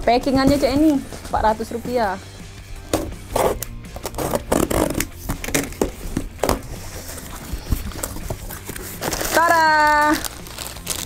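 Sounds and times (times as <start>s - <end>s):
box cutter slitting tape: 2.9s - 9.5s
contents being handled: 2.9s - 11.0s
cardboard flaps pulled open: 3.4s - 9.4s.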